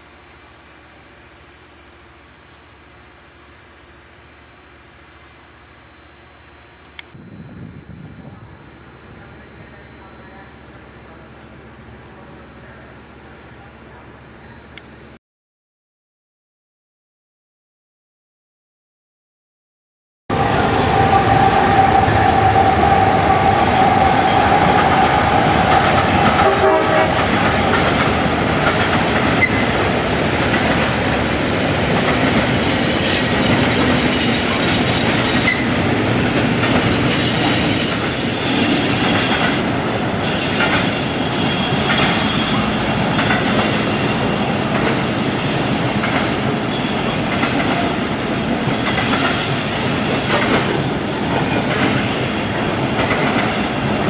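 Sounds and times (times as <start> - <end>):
steam locomotive whistle: 20.3 - 27.4, 40.2 - 43.0
high wheel squeals: 36.8 - 39.6, 40.2 - 45.8, 48.8 - 50.4
wheels clattering over rail joints: 41.6 - 44.0.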